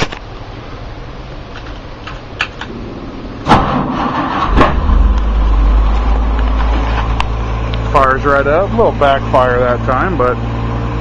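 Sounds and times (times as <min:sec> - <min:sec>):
truck engine starting and running: 0:00.0 - 0:11.0
engine backfire pop: 0:03.4 - 0:07.4.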